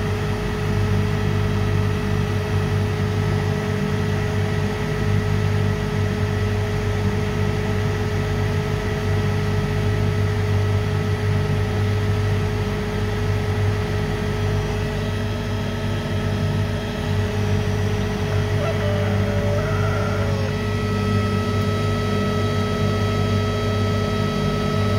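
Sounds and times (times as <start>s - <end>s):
electric motor humming and whining: 13.0s - 24.9s.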